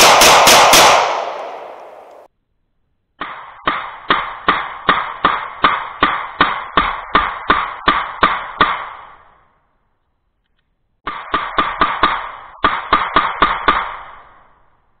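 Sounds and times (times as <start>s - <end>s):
pistol shots with echo: 0.0s - 2.3s.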